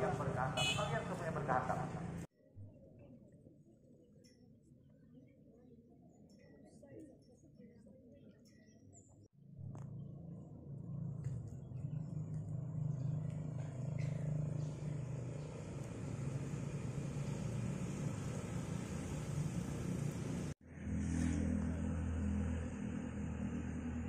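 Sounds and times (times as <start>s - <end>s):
low engine-like hum: 9.4s - 24.0s.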